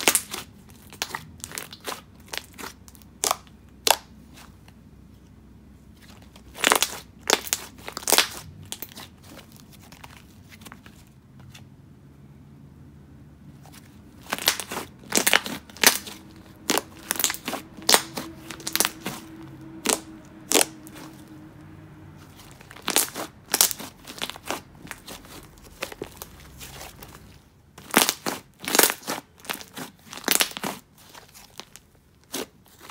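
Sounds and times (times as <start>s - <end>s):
slime squeezed with pops and crackles: 0.0s - 4.4s, 6.4s - 9.2s, 14.2s - 21.2s, 22.6s - 26.4s, 27.8s - 32.9s.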